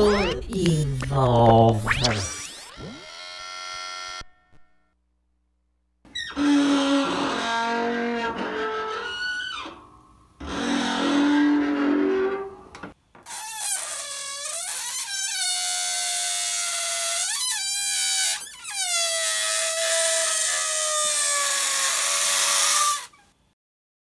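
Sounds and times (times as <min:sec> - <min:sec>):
air squealing out of balloon: 0:13.3 - 0:23.4.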